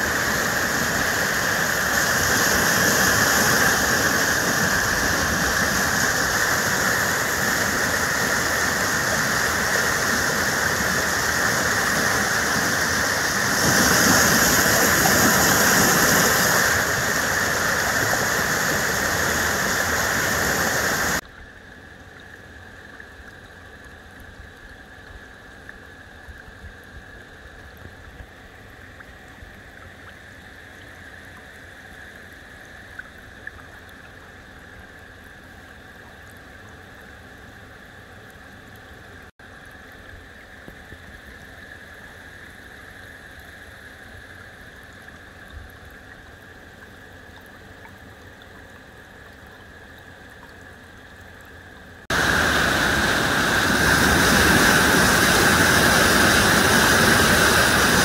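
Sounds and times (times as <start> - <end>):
stream rushing over rocks: 0.0 - 21.2, 52.0 - 58.0
shallow brook trickling: 0.0 - 58.0.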